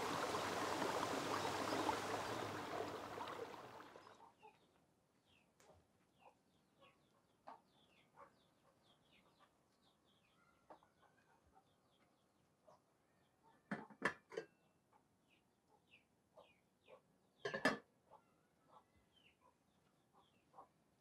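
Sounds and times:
chickens clucking: 0:00.0 - 0:04.2
flowing water: 0:00.0 - 0:04.3.

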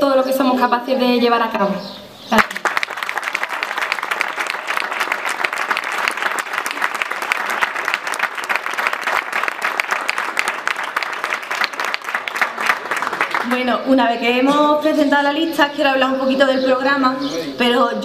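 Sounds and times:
crowd applauding: 0:02.4 - 0:13.7.

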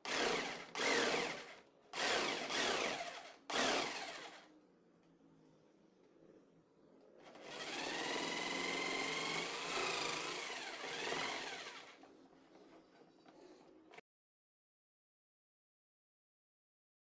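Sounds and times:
electric jigsaw cutting board: 0:00.0 - 0:04.4, 0:07.2 - 0:12.0.

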